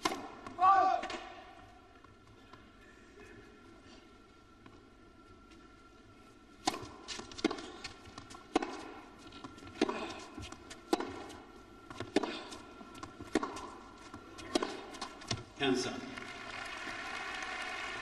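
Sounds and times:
tennis racquet strikes: 0:00.0 - 0:01.5, 0:06.6 - 0:15.4
tennis ball bounces: 0:06.6 - 0:12.4, 0:13.0 - 0:15.4.

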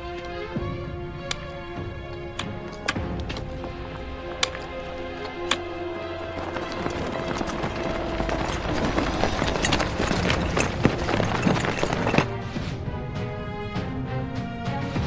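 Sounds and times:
background music with held notes: 0:00.0 - 0:15.0
gear rattling: 0:02.3 - 0:12.4
soldiers running footsteps: 0:02.5 - 0:12.4.

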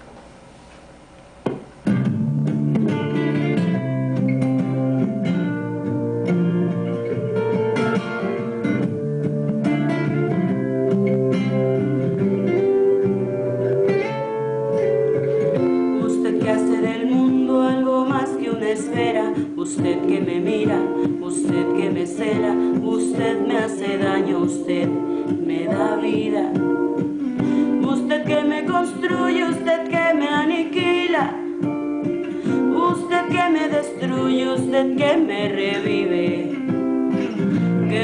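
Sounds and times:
faint steady hum: 0:00.0 - 0:38.0
guitar instrumental music: 0:00.0 - 0:38.0.

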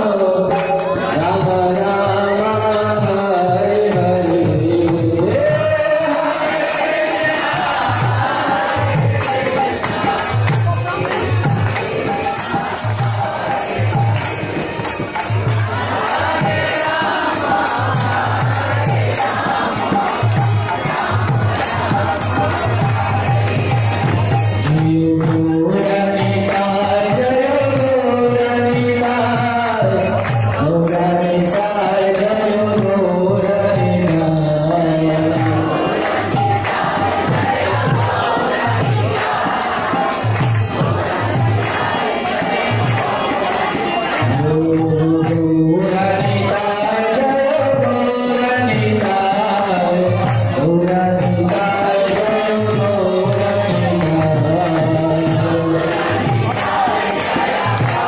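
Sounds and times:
steady drum beat and percussion: 0:00.0 - 0:58.0
voices chanting: 0:15.4 - 0:24.8, 0:51.4 - 0:58.0.

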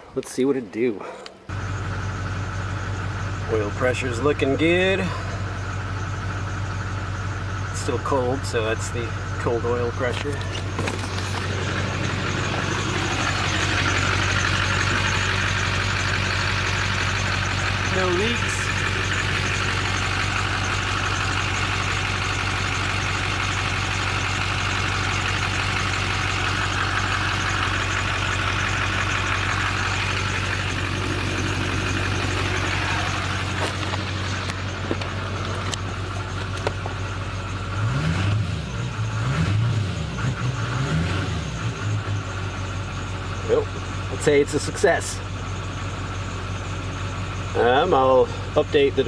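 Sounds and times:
diesel engine idling: 0:00.0 - 0:49.0.

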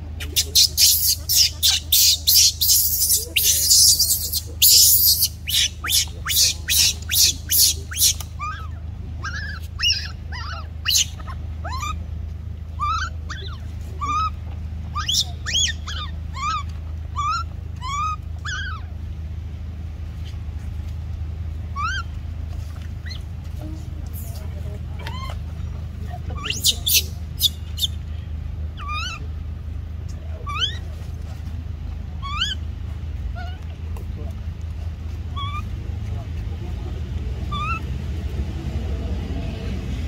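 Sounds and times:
baby monkey screaming: 0:00.2 - 0:12.0, 0:12.8 - 0:19.0, 0:21.7 - 0:22.1, 0:23.0 - 0:23.2, 0:25.0 - 0:25.5, 0:26.3 - 0:28.0, 0:28.8 - 0:29.3, 0:30.4 - 0:30.9, 0:32.2 - 0:32.7, 0:33.3 - 0:33.6, 0:35.3 - 0:35.7, 0:37.4 - 0:37.9
baby monkey whimpering calls: 0:00.2 - 0:12.0, 0:12.8 - 0:19.0, 0:21.7 - 0:22.1, 0:25.0 - 0:25.5, 0:26.3 - 0:28.0, 0:28.8 - 0:29.3, 0:30.4 - 0:30.9, 0:32.2 - 0:32.7, 0:33.3 - 0:33.7, 0:35.3 - 0:35.7, 0:37.4 - 0:37.9.

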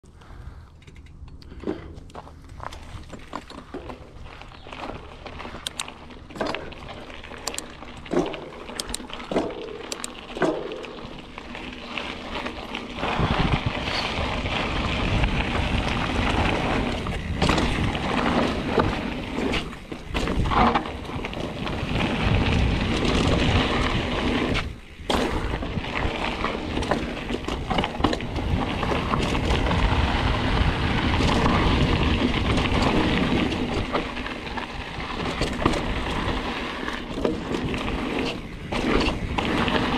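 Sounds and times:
bike tyres rolling over gravel: 0:00.1 - 0:39.9
bike rattling over bumps: 0:00.2 - 0:39.9
wind buffeting microphone: 0:10.8 - 0:39.9.

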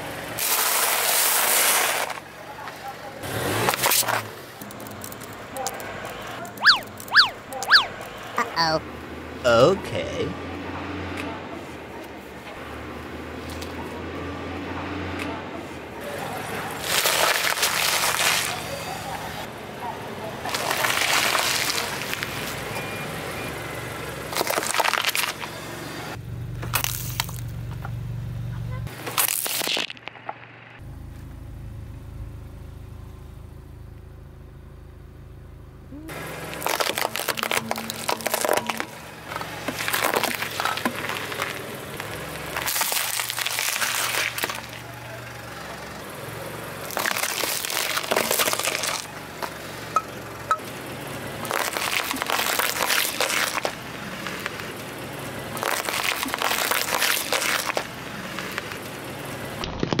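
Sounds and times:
tyre crushing objects: 0:36.5 - 0:44.7.

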